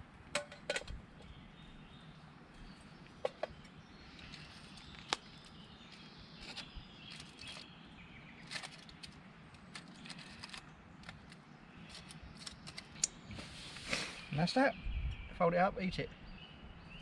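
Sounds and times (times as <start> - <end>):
birds chirping: 0.0 - 17.0.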